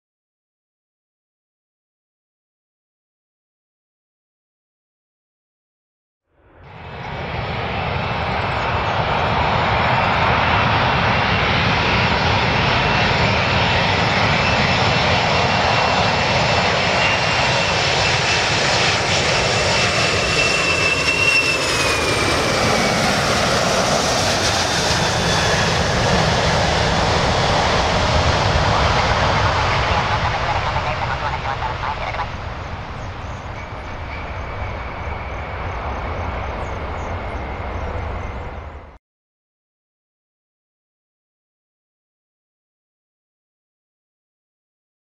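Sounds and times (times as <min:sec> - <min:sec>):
jet engine roar and whine: 0:06.3 - 0:39.0.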